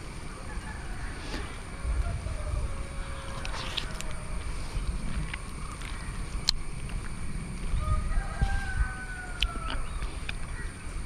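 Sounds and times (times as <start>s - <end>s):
low microphone rumble: 0.0s - 11.0s
distant rooster crowing: 0.2s - 4.7s, 7.7s - 10.8s.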